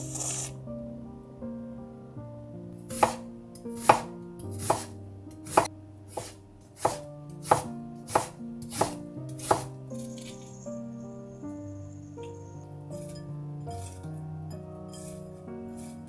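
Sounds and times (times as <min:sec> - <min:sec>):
soft background music: 0:00.0 - 0:16.0
knife slicing onion on wooden board: 0:02.9 - 0:03.2, 0:03.8 - 0:09.7.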